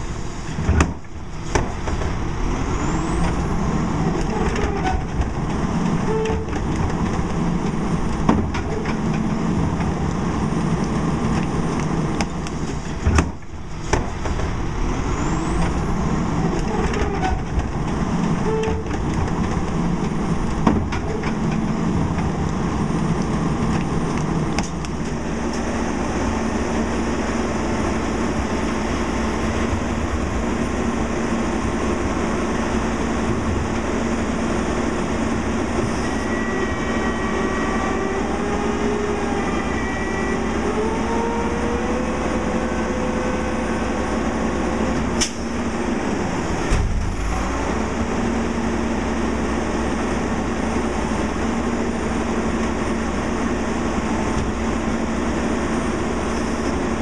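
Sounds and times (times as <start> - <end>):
diesel engine running: 0.0 - 57.0
hydraulics whining: 0.0 - 57.0.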